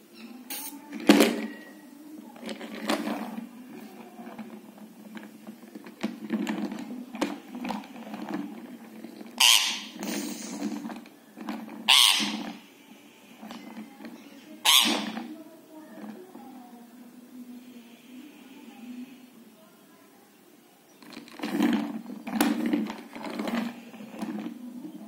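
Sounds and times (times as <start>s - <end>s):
parakeet harsh bursts: 14.6s - 15.1s.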